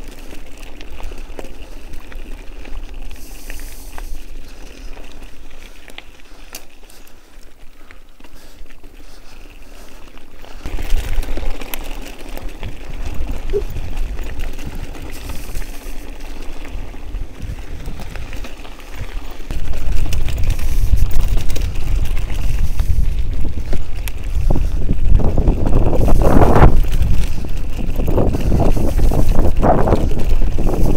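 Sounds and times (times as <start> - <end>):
wind rumbling on microphone: 0.0 - 30.9.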